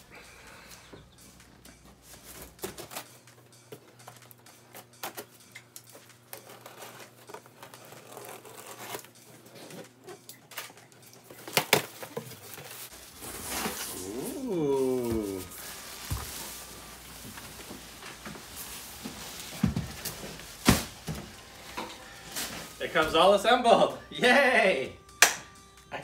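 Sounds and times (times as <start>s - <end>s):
scissors cutting packing tape: 4.0s - 12.4s.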